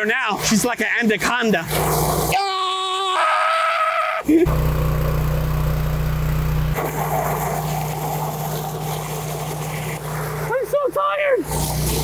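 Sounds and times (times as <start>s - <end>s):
pump machine hum: 0.0s - 12.0s
water gushing from hose: 1.4s - 2.5s, 6.8s - 12.0s.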